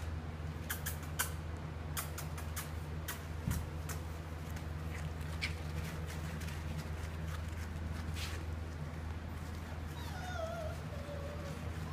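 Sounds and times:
puppies scrabbling on plastic tarp: 0:03.9 - 0:11.9
puppy whining: 0:09.4 - 0:11.9.

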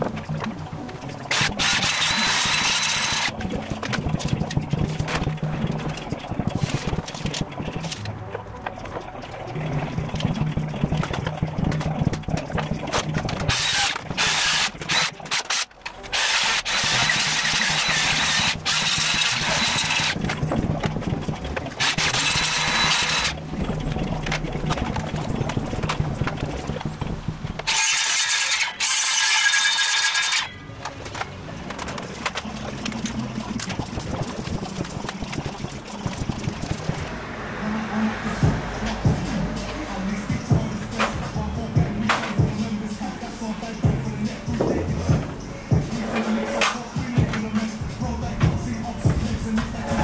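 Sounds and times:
circular saw cutting wood: 0:01.3 - 0:03.3, 0:13.4 - 0:20.2, 0:21.8 - 0:23.4, 0:27.6 - 0:30.6.

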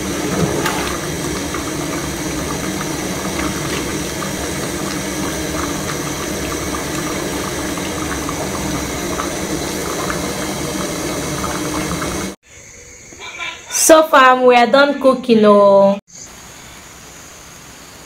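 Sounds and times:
soup bubbling in a pot: 0:00.0 - 0:12.4.

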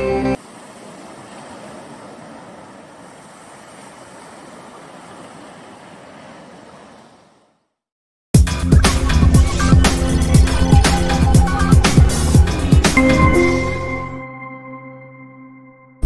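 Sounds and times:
ocean surf on beach: 0:00.0 - 0:07.7
loud music: 0:08.4 - 0:15.0.

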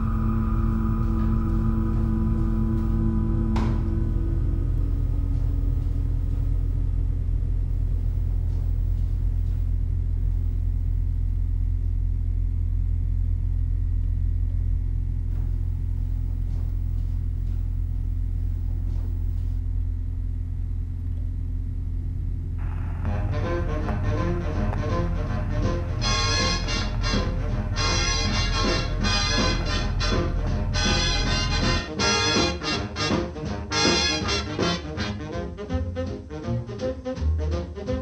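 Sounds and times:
low rumbling drone: 0:00.0 - 0:36.1
faint hum: 0:00.0 - 0:36.8.

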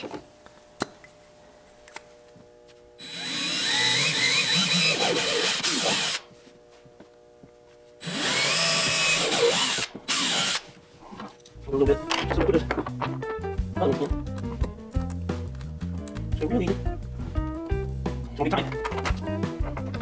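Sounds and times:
cordless drill boring holes: 0:03.0 - 0:06.3, 0:08.0 - 0:10.7.

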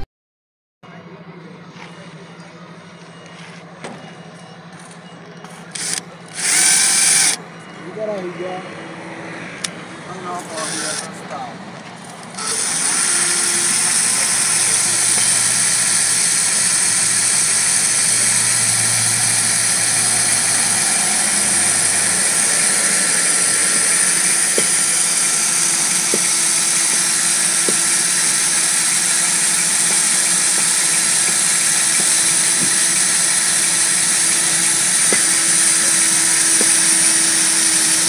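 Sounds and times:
cordless drill boring into metal: 0:05.7 - 0:07.4, 0:10.4 - 0:11.1, 0:12.2 - 0:38.0.

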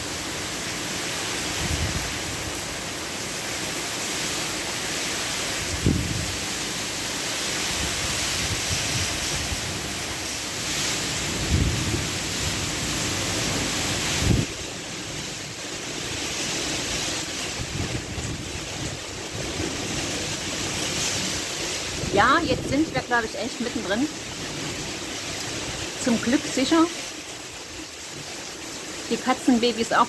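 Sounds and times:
gusting wind: 0:00.0 - 0:30.0
heavy rain: 0:00.0 - 0:30.0
wind buffeting microphone: 0:01.6 - 0:02.5, 0:05.6 - 0:06.4, 0:11.1 - 0:13.1, 0:14.0 - 0:14.6, 0:17.5 - 0:20.1, 0:20.7 - 0:23.9.

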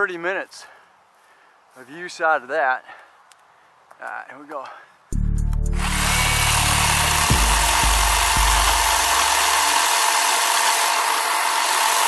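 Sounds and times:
low hum: 0:05.2 - 0:09.8
electric chainsaw cutting wood: 0:05.7 - 0:12.0.

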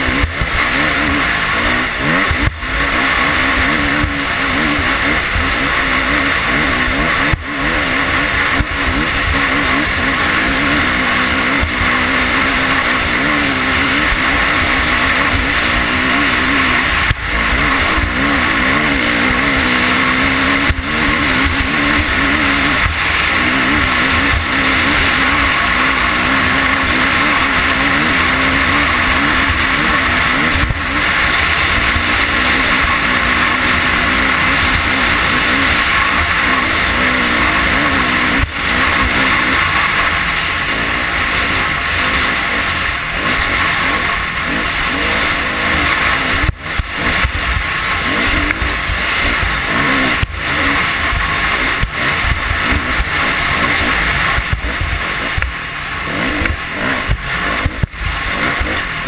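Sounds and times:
off-road motorcycle engine: 0:00.0 - 0:59.0
wind noise over camera: 0:46.3 - 0:59.0.

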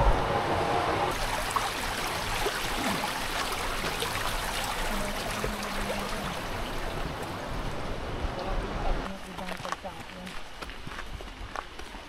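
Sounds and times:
stream water rushing: 0:01.1 - 0:09.3.

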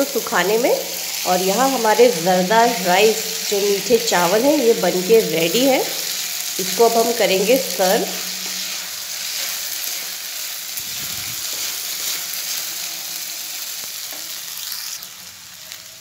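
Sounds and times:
rice sizzling in a pan: 0:00.0 - 0:16.0
wooden spatula scraping a pan: 0:07.8 - 0:10.2, 0:10.8 - 0:13.2.

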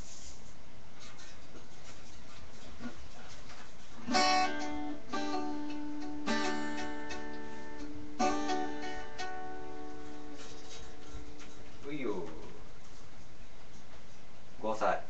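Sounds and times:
acoustic guitar strummed chords: 0:04.0 - 0:12.6.

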